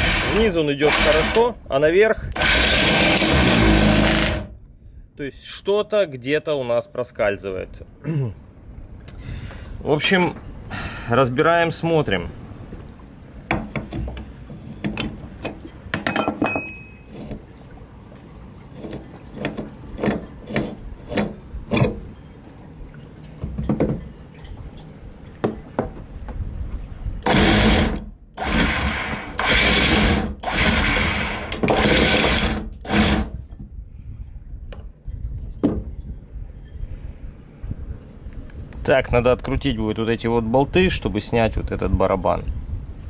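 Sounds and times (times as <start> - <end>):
loud noisy bursts: 0.0 - 1.5, 2.3 - 4.5, 27.2 - 33.3.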